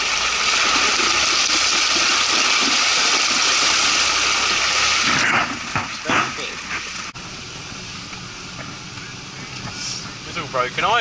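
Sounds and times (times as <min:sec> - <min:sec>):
tyres splashing through water: 0:00.0 - 0:07.2
diesel engine running: 0:00.0 - 0:11.0.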